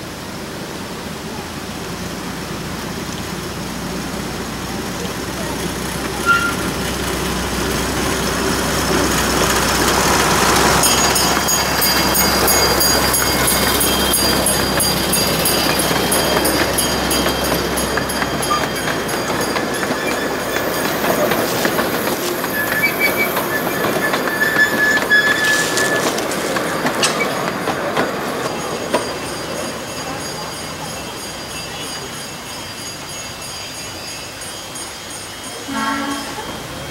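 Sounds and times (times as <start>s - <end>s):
diesel locomotive engine hum: 0.0s - 36.9s
freight cars rumbling over rail joints: 3.2s - 31.3s
wheel squeals: 5.5s - 36.9s.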